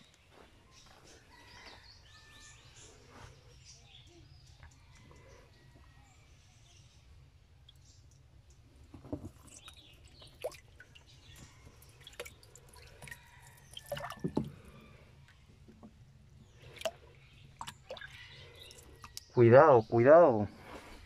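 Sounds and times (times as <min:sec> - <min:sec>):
water dripping and splashing: 0:07.6 - 0:14.7, 0:16.6 - 0:19.3.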